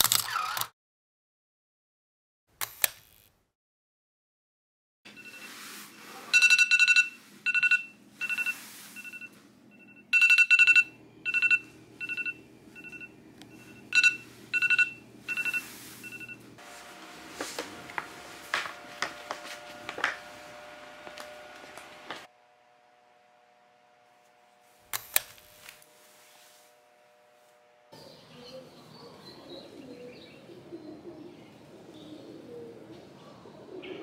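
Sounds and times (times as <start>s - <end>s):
electronic alarm beeping: 5.1s - 16.5s.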